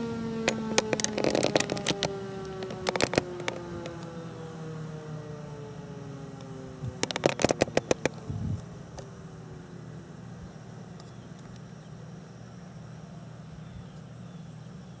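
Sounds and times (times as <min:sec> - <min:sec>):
siren winding down: 0:00.0 - 0:09.3
steady low hum: 0:00.0 - 0:15.0
loud clicks and knocks: 0:00.5 - 0:04.1, 0:06.9 - 0:08.2.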